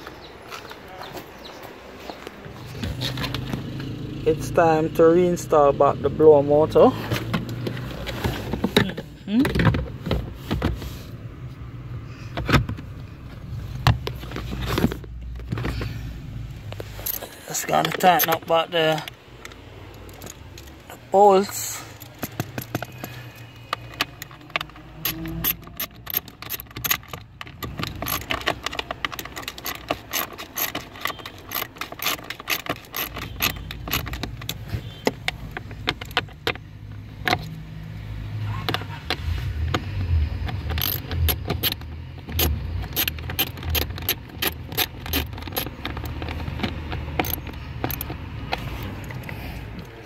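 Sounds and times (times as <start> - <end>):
hand ratchet clicking: 21.9 - 36.6, 39.7 - 49.9.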